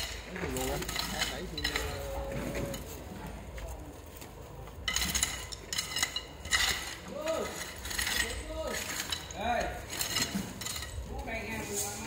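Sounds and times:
tile pieces clinking and scraping: 4.8 - 12.0.

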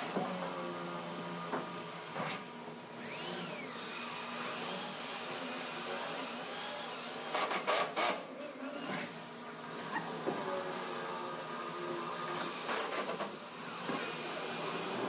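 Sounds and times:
cordless drill driving screws: 3.0 - 8.2.

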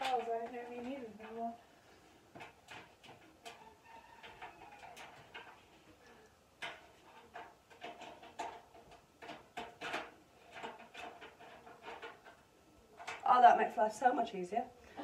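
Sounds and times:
light metal clicks and knocks: 2.3 - 13.3.

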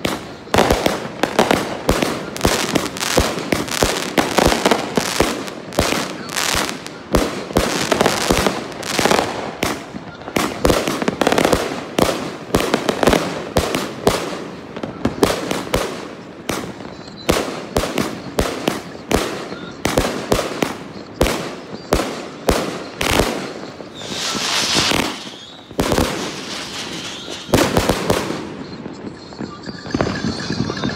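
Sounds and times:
firework bangs: 0.0 - 30.9
firework hissing: 23.6 - 27.6.

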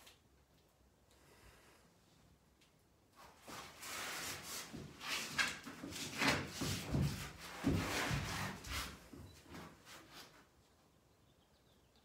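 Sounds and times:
rustling and shuffling: 2.6 - 10.9.

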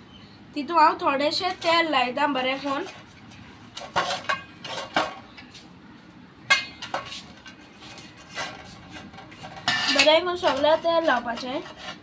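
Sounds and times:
brush clinking against tin: 6.5 - 11.8.

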